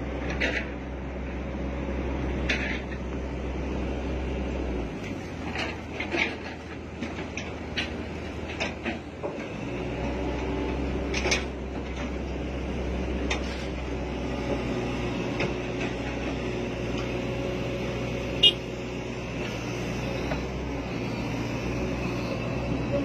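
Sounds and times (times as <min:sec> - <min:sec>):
excavator diesel engine running: 0:00.0 - 0:23.0
machine knocks and clanks: 0:05.4 - 0:09.6.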